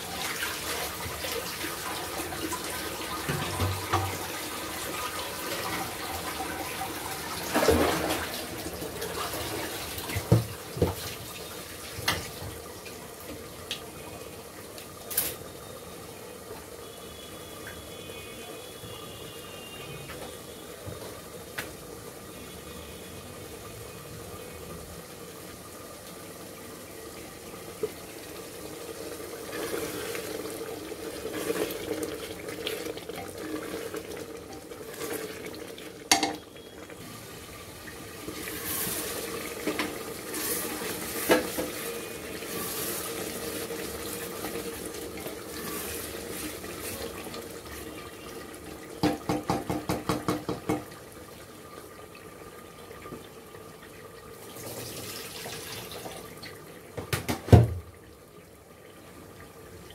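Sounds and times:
meat sizzling in a pot: 0.0s - 59.9s
spatula knocking on pot: 49.0s - 50.9s.

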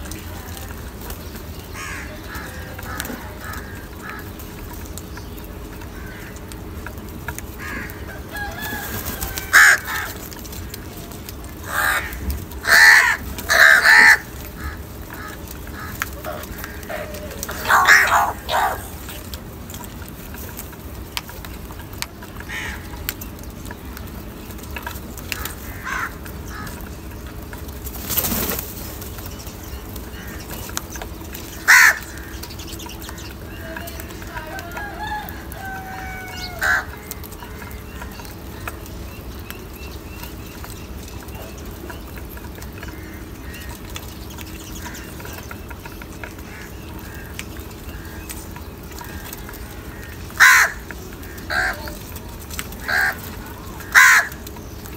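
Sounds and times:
crows cawing: 1.6s - 4.8s, 5.7s - 20.0s, 22.3s - 23.1s, 24.8s - 27.3s, 29.9s - 38.9s, 42.4s - 54.8s.

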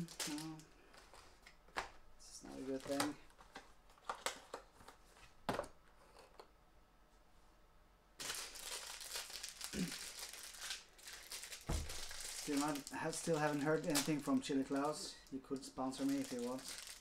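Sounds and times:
foil wrapper crinkling: 0.0s - 1.5s, 8.2s - 17.0s.

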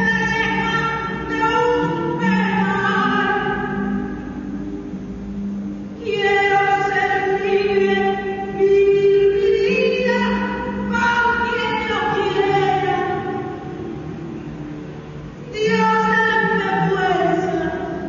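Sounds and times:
woman singing: 0.0s - 3.9s, 6.0s - 13.4s, 15.5s - 18.0s
low steady accompaniment: 0.0s - 18.0s.

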